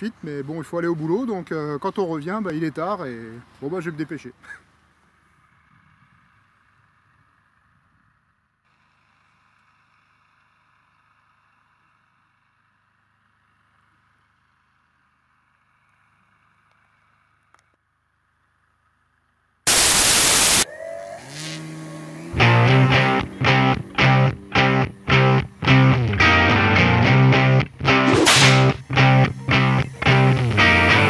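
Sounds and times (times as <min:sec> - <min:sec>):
static noise burst: 0:19.7 - 0:20.6
faint hiss: 0:19.7 - 0:20.7
music: 0:22.4 - 0:31.0.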